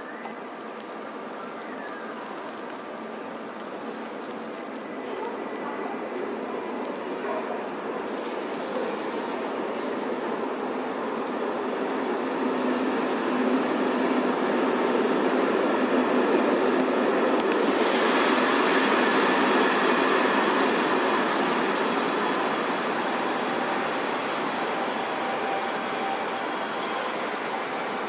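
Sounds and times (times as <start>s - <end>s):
train wheels rumbling on rail: 0.3s - 28.0s
train hiss: 8.0s - 10.1s, 17.4s - 28.0s
thin high squeal: 23.4s - 27.8s.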